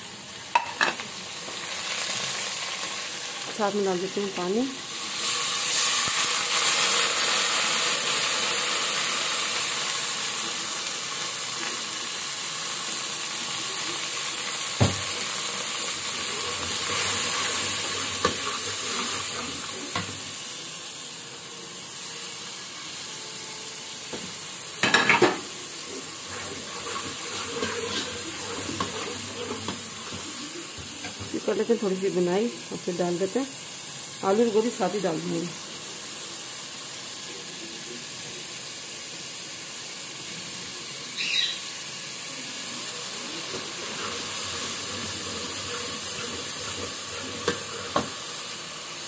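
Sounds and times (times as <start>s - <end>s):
water sizzling in hot oil: 0.0s - 49.0s.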